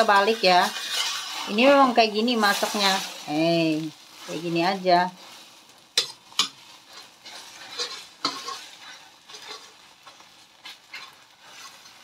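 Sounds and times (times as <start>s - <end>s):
metal spoon scraping and tapping pan: 0.0s - 1.7s, 6.0s - 12.0s
omelette sizzling in wok: 0.0s - 12.0s.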